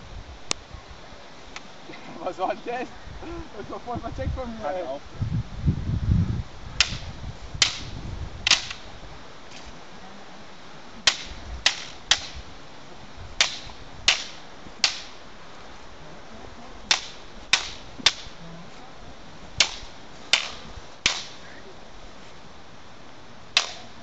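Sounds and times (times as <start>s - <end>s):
wooden staffs clacking together: 6.8s - 7.9s, 8.5s - 8.8s, 11.1s - 12.4s, 13.4s - 15.2s, 16.9s - 18.4s, 19.6s - 21.4s, 23.6s - 23.9s.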